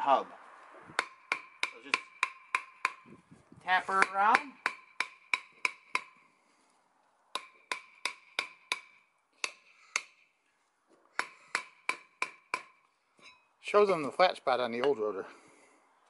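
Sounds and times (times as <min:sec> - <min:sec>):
hammer tapping on metal: 0:01.0 - 0:03.1, 0:03.9 - 0:06.2, 0:07.3 - 0:10.2, 0:11.2 - 0:13.4.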